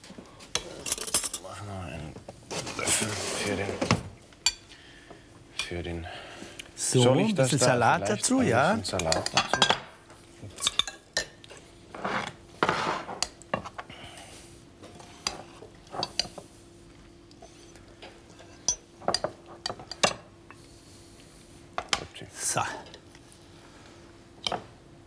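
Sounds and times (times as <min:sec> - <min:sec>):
cutlery clinking on plates: 0:09.0 - 0:09.9, 0:10.6 - 0:13.8.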